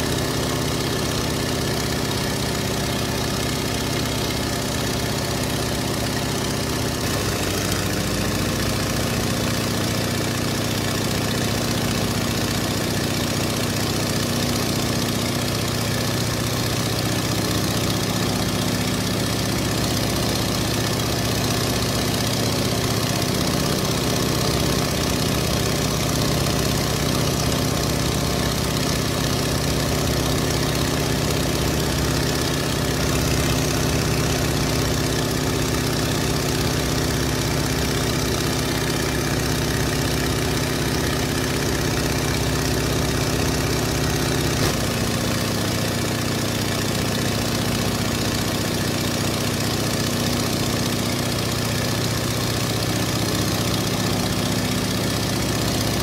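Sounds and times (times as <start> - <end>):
engine running steadily: 0.0 - 56.0.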